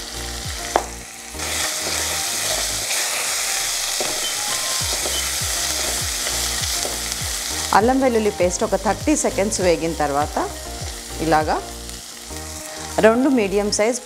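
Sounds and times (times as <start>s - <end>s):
soft background music: 0.0s - 14.0s
vegetables sizzling in hot oil: 0.0s - 14.0s
spatula stirring: 1.4s - 3.3s.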